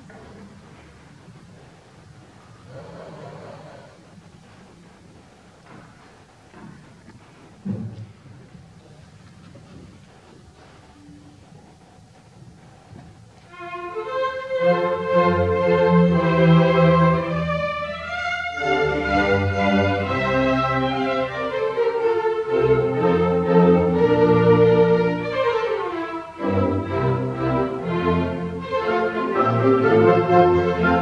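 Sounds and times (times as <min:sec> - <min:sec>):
chamber orchestra classical music: 0:13.4 - 0:31.0.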